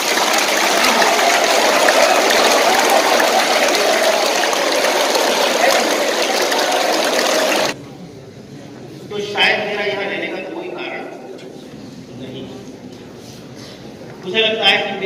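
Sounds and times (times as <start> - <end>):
crowd clapping: 0.0 - 7.8.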